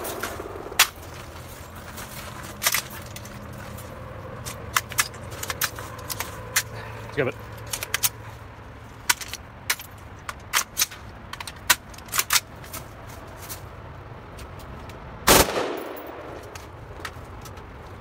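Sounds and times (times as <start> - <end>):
automatic gunfire burst: 15.3 - 16.3
single sharp gunshots: 15.3 - 16.4
gunfire echo: 15.3 - 16.5.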